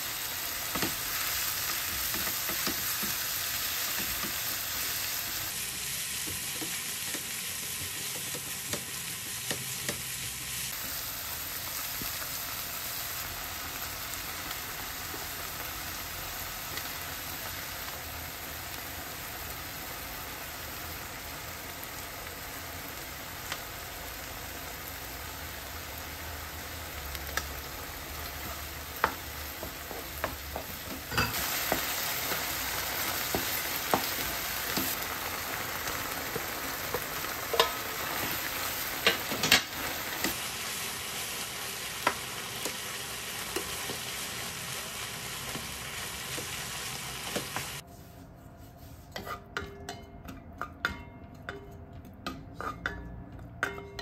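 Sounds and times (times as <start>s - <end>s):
meat sizzling in a frying pan: 0.0s - 47.8s
utensils scraping a pan: 47.8s - 51.0s, 52.3s - 54.0s.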